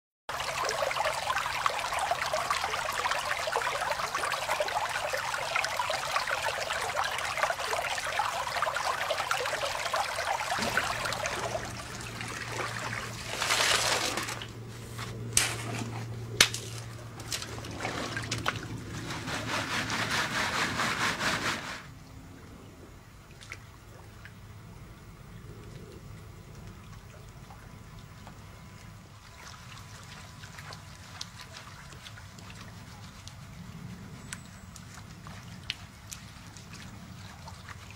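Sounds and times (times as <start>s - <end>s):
creek water rushing and splashing: 0.3s - 14.8s, 15.4s - 21.8s
shovel scooping gravel: 13.1s - 18.2s.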